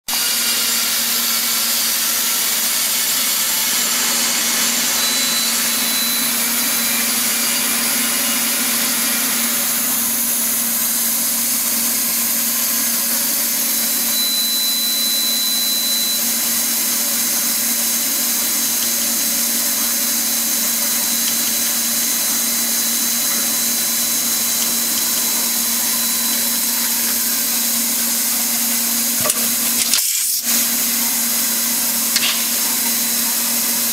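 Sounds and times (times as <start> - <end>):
machine hiss: 0.2 - 33.9
faint high whine: 3.5 - 29.8
machine low hum: 3.8 - 29.9.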